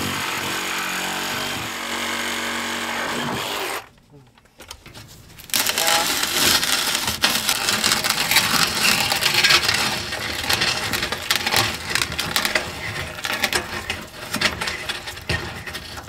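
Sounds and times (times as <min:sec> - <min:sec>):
reciprocating saw cutting wood: 0:00.0 - 0:03.9.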